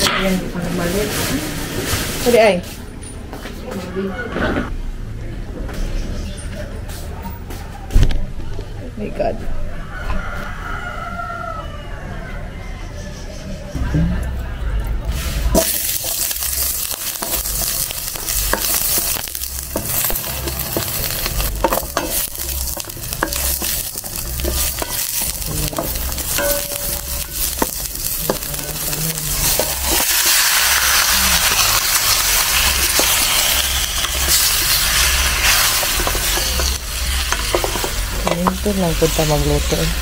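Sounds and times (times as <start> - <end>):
food sizzling in hot oil: 15.1 - 40.0
spoon stirring against pan: 15.5 - 40.0.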